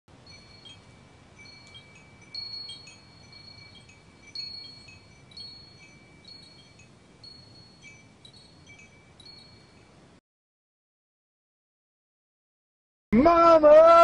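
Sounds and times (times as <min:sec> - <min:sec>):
bell-like metal chimes ringing: 0:00.1 - 0:10.0.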